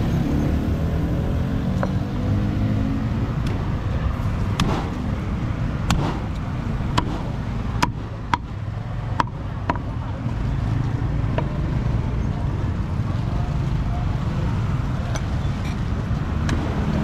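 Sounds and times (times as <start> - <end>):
low traffic rumble: 0.0 - 17.0
cleaver chopping on board: 4.6 - 4.9, 5.9 - 6.2, 7.0 - 8.5.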